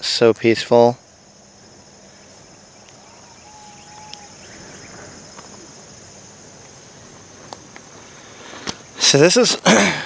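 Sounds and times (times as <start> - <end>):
crickets chirping: 0.0 - 10.0
faint bird chirps: 1.4 - 6.3
whistled bird note: 2.8 - 5.1.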